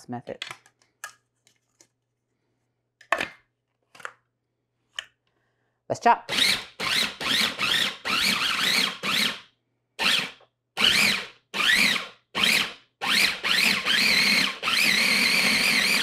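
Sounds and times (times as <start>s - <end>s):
food processor motor whine: 6.3s - 9.4s, 10.0s - 16.0s.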